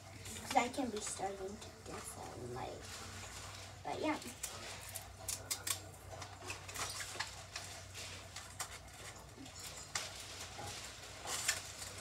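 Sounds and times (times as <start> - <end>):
low steady hum: 0.0 - 12.0
paper crinkling: 0.0 - 12.0.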